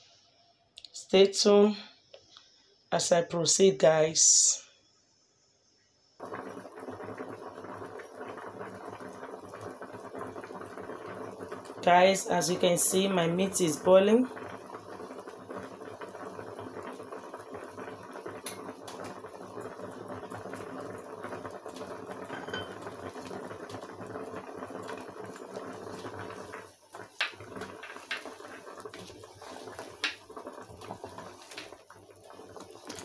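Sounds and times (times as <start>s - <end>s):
pot boiling with bubbling hiss: 6.0s - 33.0s
wooden spoon knocking pot: 22.3s - 22.9s, 27.1s - 30.3s.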